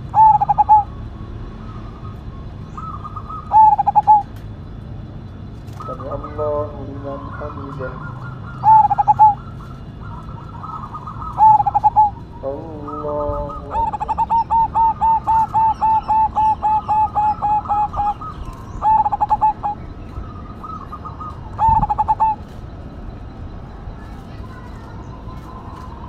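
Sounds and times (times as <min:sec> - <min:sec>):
low wavering bird call: 0:00.0 - 0:04.3, 0:05.8 - 0:22.6
dove cooing: 0:00.0 - 0:04.4, 0:05.6 - 0:22.7.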